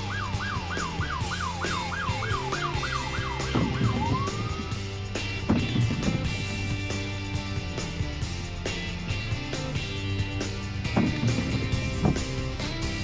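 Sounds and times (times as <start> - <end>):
police siren: 0.0 - 4.9
background music: 0.0 - 13.0.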